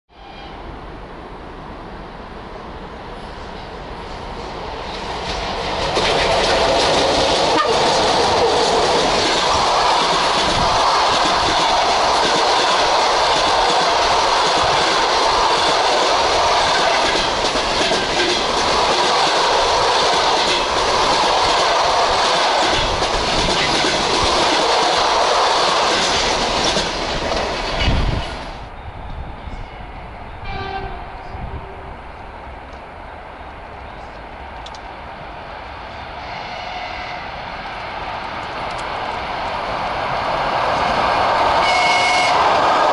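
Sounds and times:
train passing at speed: 0:00.1 - 0:42.9.

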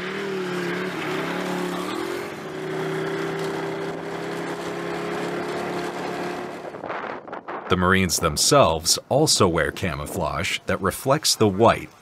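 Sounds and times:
snowmobile engine droning: 0:00.0 - 0:07.2.

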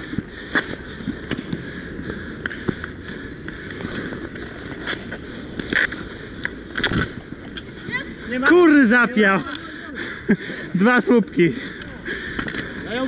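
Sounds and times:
skate wheels rolling and scraping: 0:00.0 - 0:13.0
sticks and puck clacking: 0:02.4 - 0:07.7, 0:12.4 - 0:12.7.

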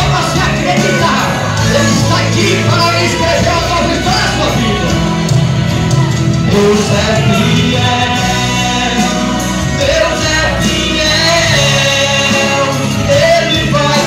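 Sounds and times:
man singing into a microphone: 0:00.0 - 0:05.3, 0:06.4 - 0:14.0
backing music: 0:00.0 - 0:14.0.

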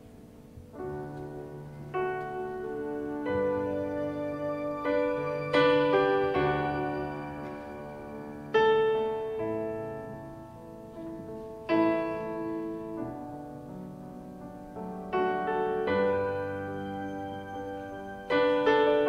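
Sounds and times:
electric piano sustained chords: 0:00.0 - 0:19.0.

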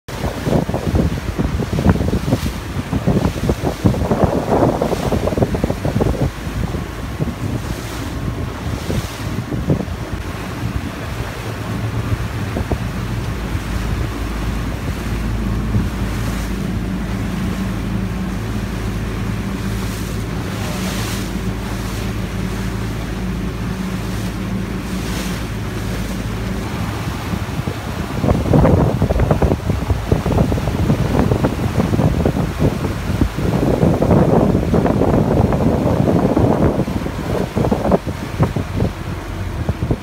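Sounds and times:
water splashing and slapping: 0:00.0 - 0:40.0
boat engines droning: 0:00.1 - 0:40.0
wind buffeting microphone: 0:00.1 - 0:40.0.

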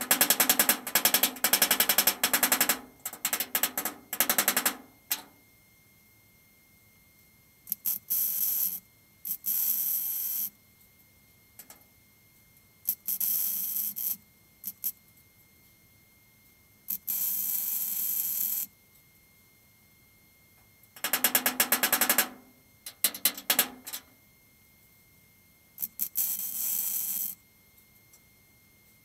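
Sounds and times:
welder arc bursts: 0:00.0 - 0:05.3, 0:21.0 - 0:24.1.

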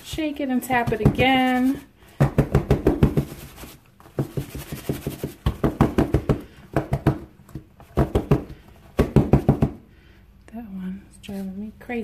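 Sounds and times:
soap mold knocking on tabletop: 0:00.7 - 0:01.4, 0:02.1 - 0:03.4, 0:04.1 - 0:09.9.

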